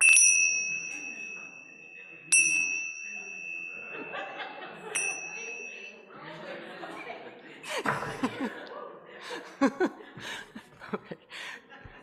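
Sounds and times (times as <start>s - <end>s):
high chime ringing: 0.0s - 6.2s.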